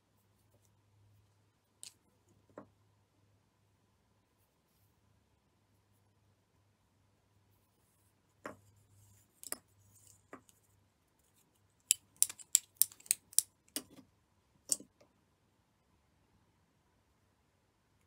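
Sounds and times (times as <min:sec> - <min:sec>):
plastic shuttles clicking and tapping: 0:11.9 - 0:14.0.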